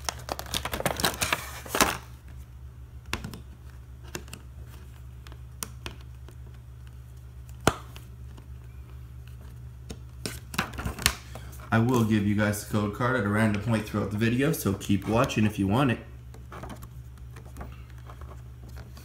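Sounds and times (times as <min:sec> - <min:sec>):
plastic box insert crinkling: 0:00.0 - 0:02.1
steady low hum: 0:00.0 - 0:19.0.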